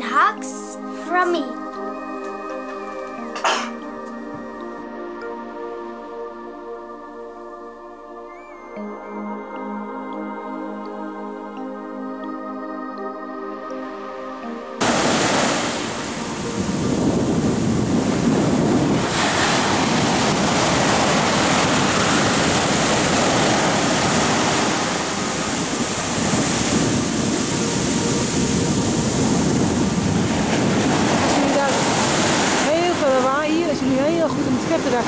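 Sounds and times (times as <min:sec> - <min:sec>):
ocean waves on a beach: 0:14.8 - 0:35.0.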